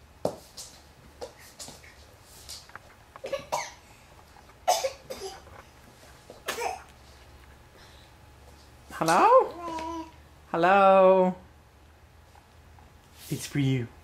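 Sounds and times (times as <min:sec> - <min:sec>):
faint low room hum: 0:00.0 - 0:14.0
person coughing: 0:03.3 - 0:03.8, 0:04.6 - 0:05.4, 0:06.4 - 0:06.9.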